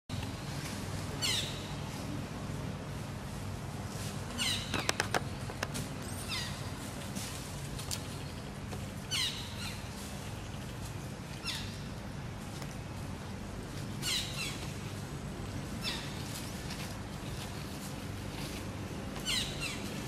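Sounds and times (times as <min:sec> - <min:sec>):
sharp clicks: 0:04.7 - 0:05.8.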